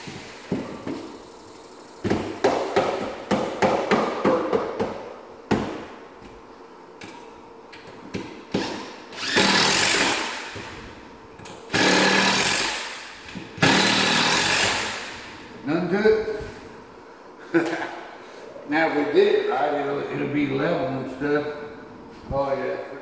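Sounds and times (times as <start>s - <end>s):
impact driver driving screws: 8.6s - 10.4s, 11.7s - 13.0s.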